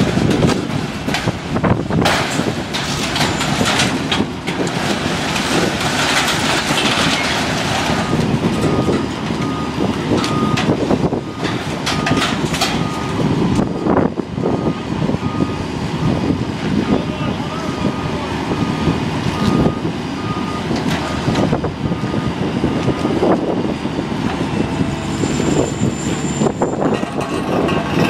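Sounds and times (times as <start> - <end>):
heavy vehicle engine running: 0.0 - 28.0
reversing alarm beeping: 8.0 - 16.2, 17.7 - 23.2, 24.6 - 26.9.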